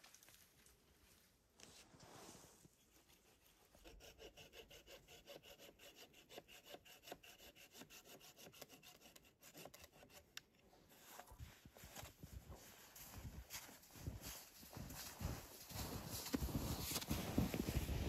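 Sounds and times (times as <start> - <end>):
hand saw cutting wood: 3.2 - 10.4
footsteps crunching in snow: 11.0 - 18.0.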